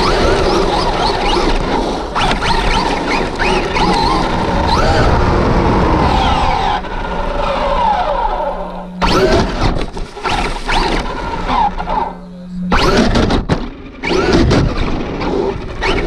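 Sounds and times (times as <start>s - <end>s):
electric motor whining: 0.0s - 16.0s
tire and wind noise: 0.0s - 16.0s.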